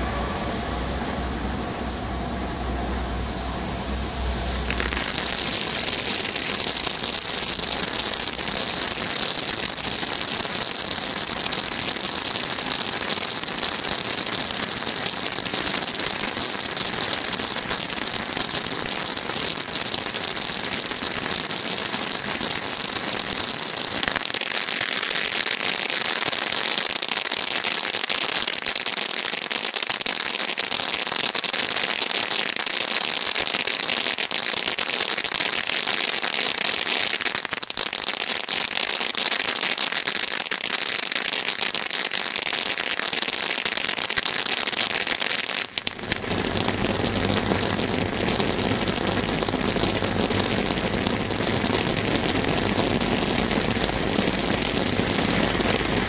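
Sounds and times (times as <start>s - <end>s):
deep steady rumble: 0.0s - 24.2s, 45.9s - 56.0s
firework fountain hissing sparks: 0.0s - 56.0s.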